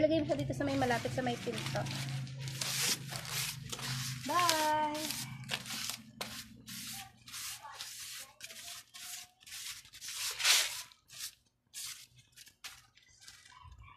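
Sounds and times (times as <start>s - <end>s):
hand rubbing soil off a plant: 0.8s - 12.0s.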